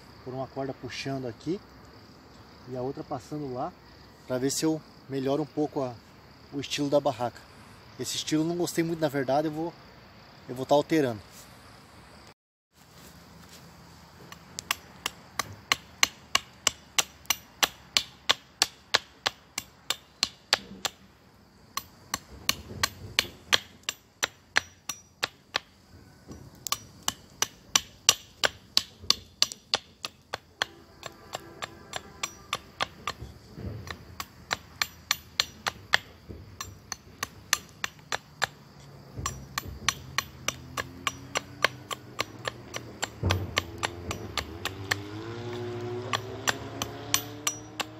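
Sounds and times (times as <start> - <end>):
hammering: 14.3 - 21.0, 21.8 - 47.9.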